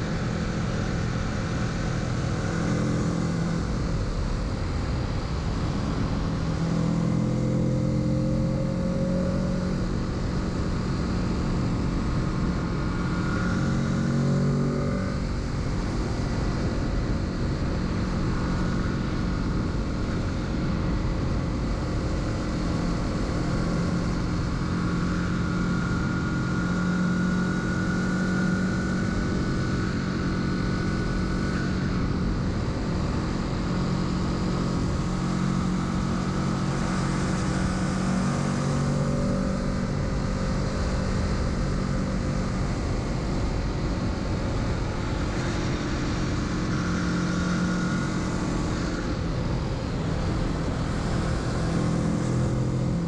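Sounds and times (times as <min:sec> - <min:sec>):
motorcycle engine running: 0:00.0 - 0:53.0.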